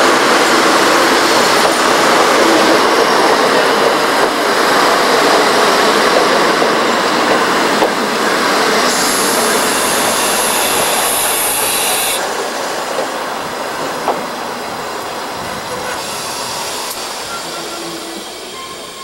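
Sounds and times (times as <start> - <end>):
train coaches rolling: 0.0 - 19.0
high brake squeal: 8.9 - 12.2, 15.9 - 19.0.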